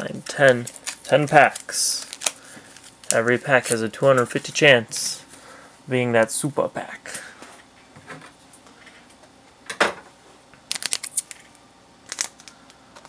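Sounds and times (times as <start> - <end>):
packaging clicks and crinkles: 0.1 - 4.5, 10.7 - 13.0.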